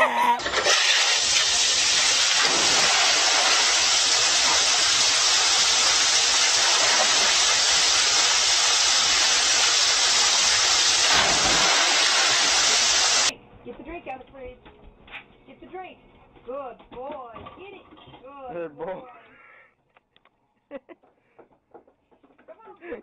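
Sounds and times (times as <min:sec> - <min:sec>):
water rushing down a waterslide: 0:00.4 - 0:13.3.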